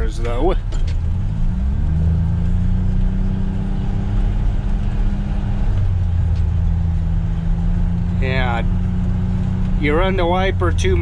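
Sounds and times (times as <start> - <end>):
vehicle engine from inside cab: 0.0 - 11.0.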